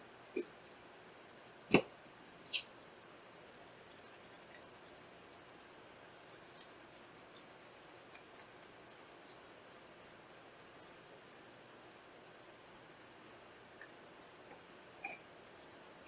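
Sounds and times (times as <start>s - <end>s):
paper wipe scrubbing circuit board: 2.4s - 5.4s, 6.1s - 13.0s.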